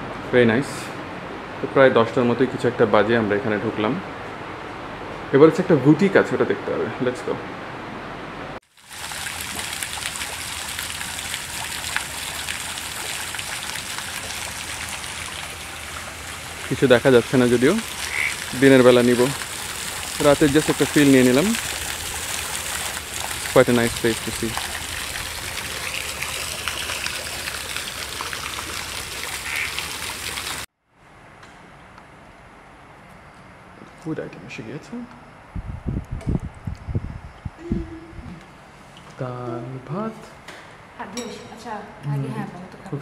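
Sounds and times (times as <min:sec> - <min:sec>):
fountain splashing into pond: 0:08.6 - 0:30.7.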